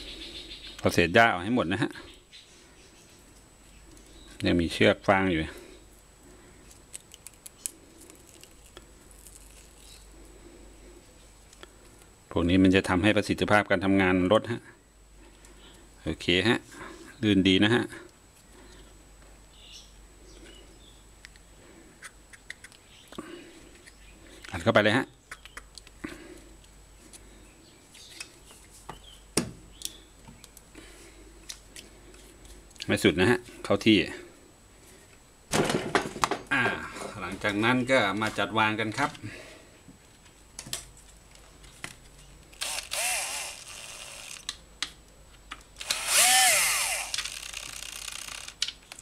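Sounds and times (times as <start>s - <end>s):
cordless drill driving screws: 42.6s - 44.5s, 45.8s - 48.6s.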